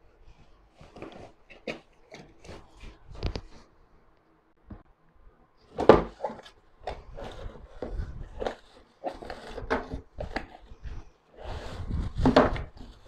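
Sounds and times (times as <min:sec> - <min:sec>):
scrapes and rustles of contents: 0:00.0 - 0:03.9, 0:05.6 - 0:13.0
cardboard box knocks and thumps: 0:12.2 - 0:12.9.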